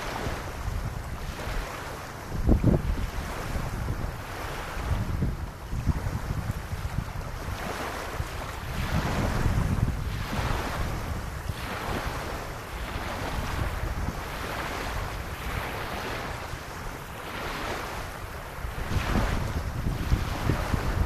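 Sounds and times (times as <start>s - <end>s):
small waves lapping on beach: 0.0s - 21.0s
wind rumbling on microphone: 0.0s - 21.0s.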